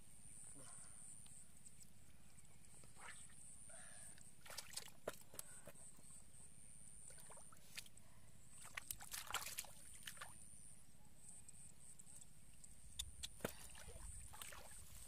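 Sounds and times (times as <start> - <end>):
bare feet squelching in mud puddle: 4.4 - 5.4, 8.6 - 10.4, 13.3 - 15.0.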